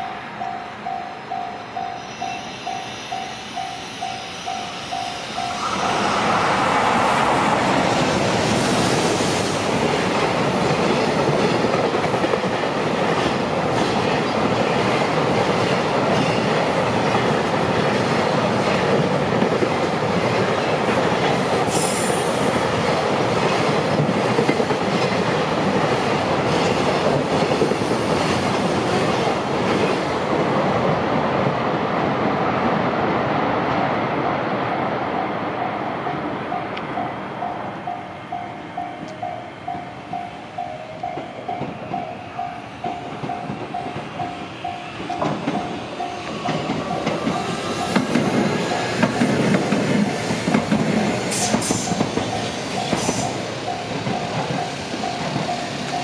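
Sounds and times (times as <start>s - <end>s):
train wagons clattering: 37.9s - 56.0s.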